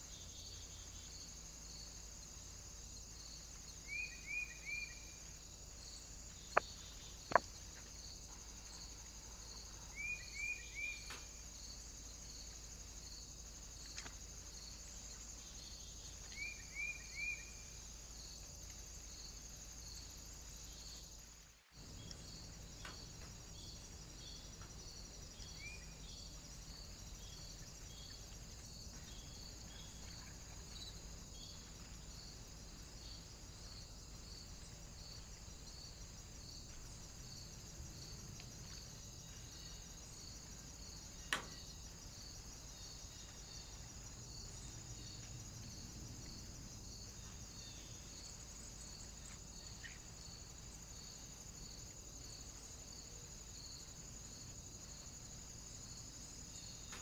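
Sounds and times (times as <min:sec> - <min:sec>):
faint bird chirps: 0:03.8 - 0:05.2, 0:08.7 - 0:11.4, 0:15.4 - 0:17.8.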